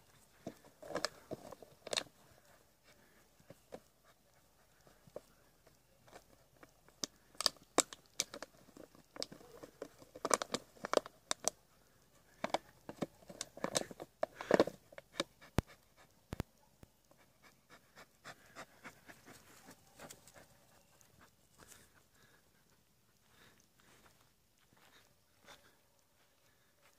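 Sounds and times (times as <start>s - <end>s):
plastic bottle crackling: 6.2s - 11.6s
dog panting: 15.1s - 16.3s, 17.1s - 23.5s.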